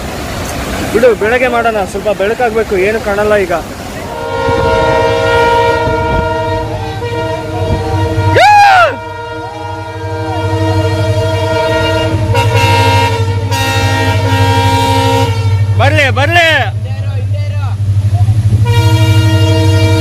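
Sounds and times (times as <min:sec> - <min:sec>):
train engine rumble: 0:00.0 - 0:20.0
train horn blast: 0:04.0 - 0:16.0, 0:18.5 - 0:20.0
person whooping: 0:08.3 - 0:09.0.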